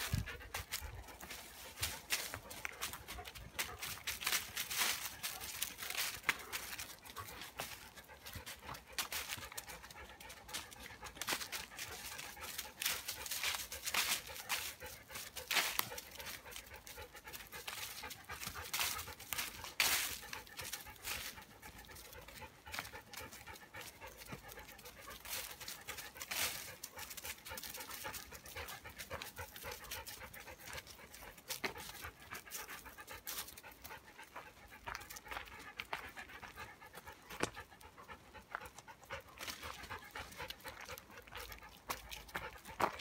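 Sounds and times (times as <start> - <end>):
footsteps crunching on leaves: 0.0 - 9.8, 10.5 - 21.5
dog panting: 0.0 - 43.0.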